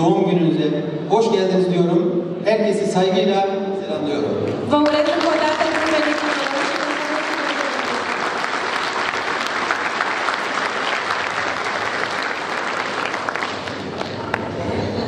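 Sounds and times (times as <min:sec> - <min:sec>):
audience applauding: 0:04.8 - 0:14.7.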